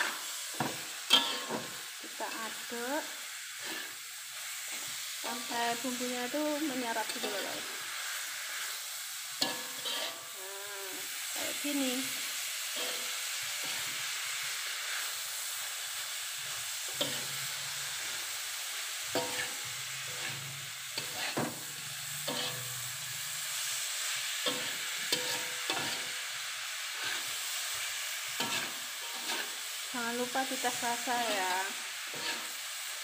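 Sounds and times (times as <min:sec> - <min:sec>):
metal spatula scraping wok: 0:00.0 - 0:02.8, 0:03.6 - 0:10.4, 0:16.3 - 0:18.2, 0:19.0 - 0:23.4, 0:24.1 - 0:32.7
food sizzling in wok: 0:00.0 - 0:33.0.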